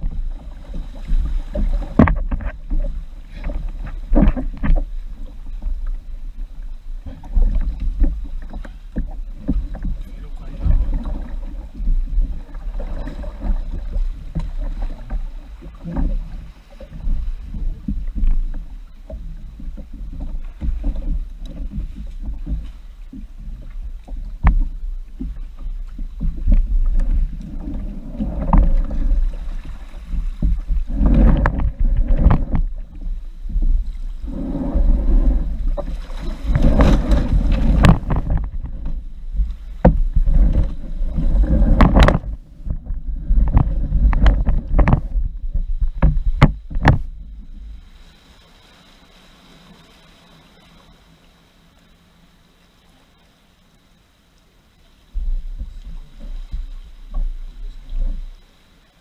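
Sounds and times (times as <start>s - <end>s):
wind rumble on microphone: 0.0s - 48.1s, 55.1s - 58.4s
water splashing against kayak hull: 0.0s - 59.0s.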